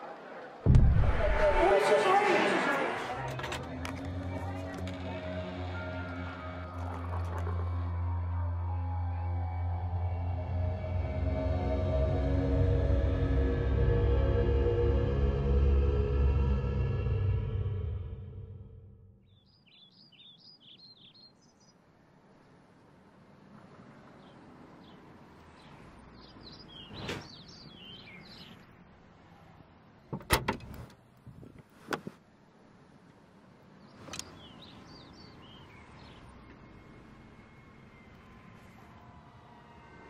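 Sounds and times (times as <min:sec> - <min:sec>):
outdoor background noise: 0:00.0 - 0:40.0
small birds chirping: 0:19.2 - 0:21.8, 0:24.1 - 0:28.8, 0:33.6 - 0:38.2.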